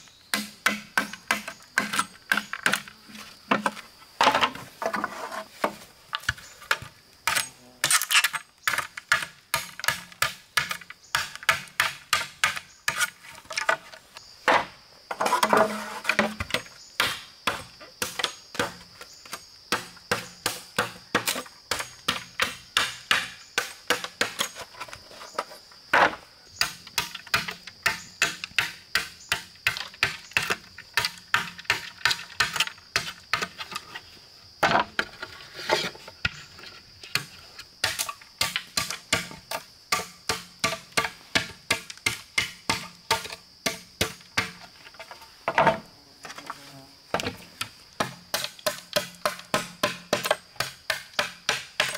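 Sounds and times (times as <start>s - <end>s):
blade chopping wood: 0.3s - 2.9s, 5.7s - 13.1s, 14.5s - 18.8s, 19.7s - 24.6s, 37.2s - 44.6s, 48.0s - 51.9s.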